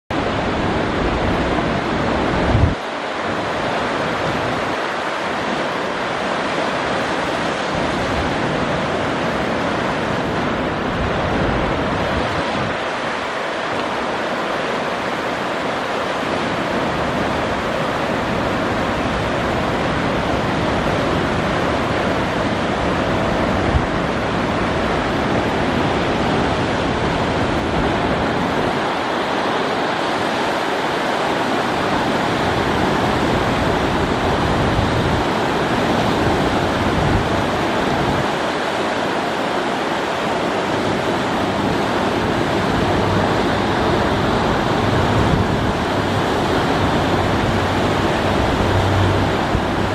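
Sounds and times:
river rapids rushing over rocks: 0:00.1 - 0:49.9
wind rumbling on microphone: 0:00.1 - 0:49.9.

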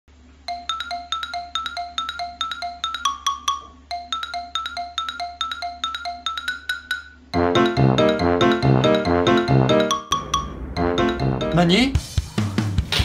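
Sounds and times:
bouncy music of struck notes: 0:00.5 - 0:13.0.

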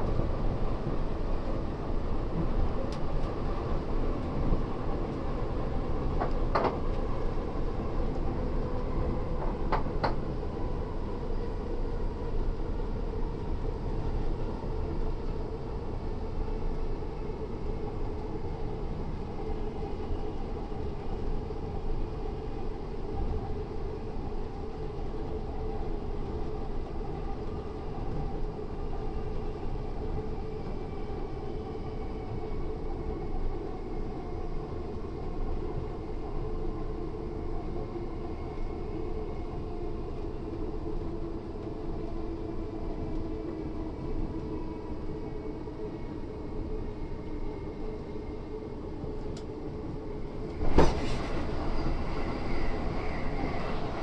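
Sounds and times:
wheels rumbling on rail: 0:50.5 - 0:54.0.

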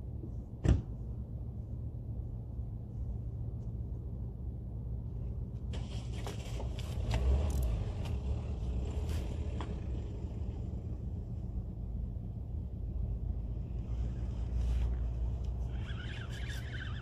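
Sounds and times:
low rumble: 0:00.0 - 0:16.7.

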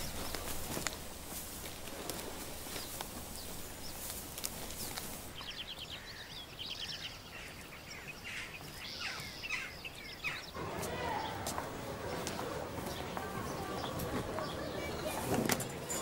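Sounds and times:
soft rustling: 0:00.0 - 0:05.6
birds chirping and trilling: 0:00.0 - 0:16.0.

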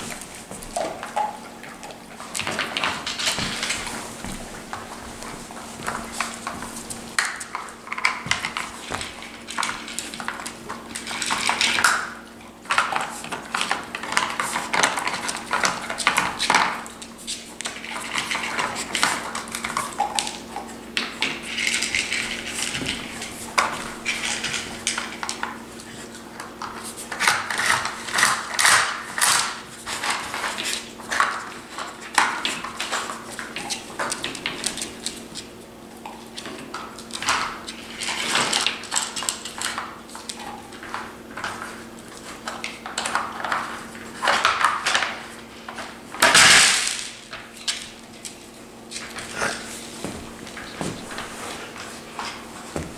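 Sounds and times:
plastic toys clattering on wooden floor: 0:00.0 - 0:05.0, 0:36.4 - 0:41.8, 0:42.4 - 0:48.3.

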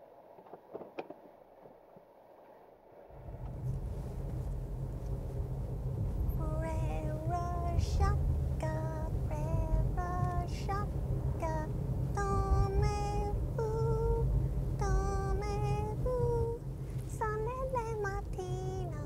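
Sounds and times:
car cabin rumble: 0:03.1 - 0:19.0
woman singing slow melody: 0:06.4 - 0:19.0.

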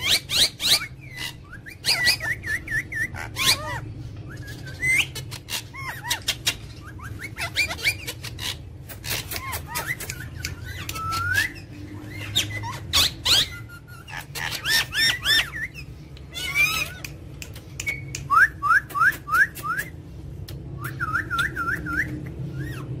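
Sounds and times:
parakeets whistling calls: 0:00.0 - 0:20.0, 0:20.7 - 0:23.0
parakeet clicks: 0:08.9 - 0:11.1, 0:16.9 - 0:19.9.

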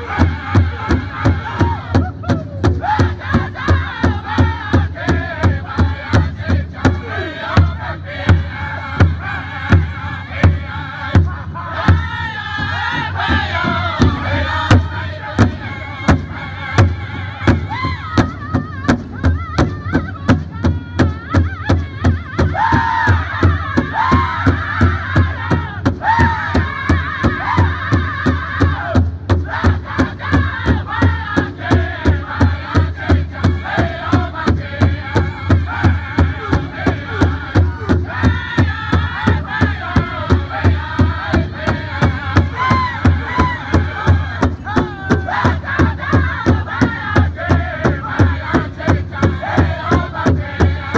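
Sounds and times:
large drum steady beat: 0:00.0 - 0:50.9
men singing in high wavering voices: 0:00.0 - 0:50.9.

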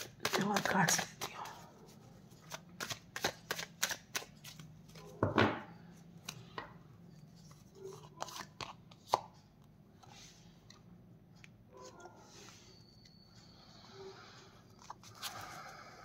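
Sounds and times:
cards clicking and snapping: 0:00.0 - 0:01.4, 0:02.5 - 0:04.7
cards rustling: 0:00.0 - 0:05.1.

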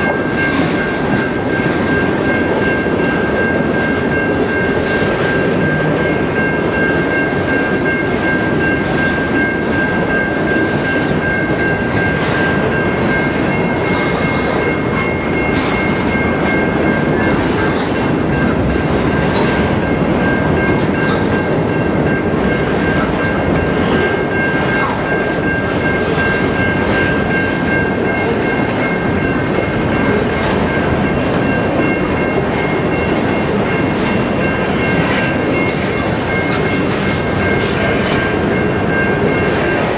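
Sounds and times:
train wheels rumbling on rail: 0:00.0 - 0:39.9
wheels clicking over rail joints: 0:00.0 - 0:39.9.

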